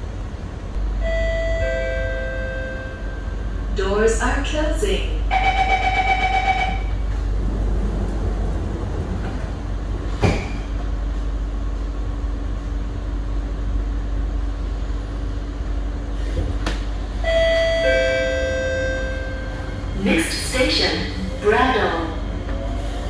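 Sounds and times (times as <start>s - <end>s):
faint constant hum: 0.0s - 22.4s
train rumble inside carriage: 0.0s - 23.0s
two-tone train chime: 0.9s - 4.1s, 5.3s - 7.0s, 17.2s - 23.0s.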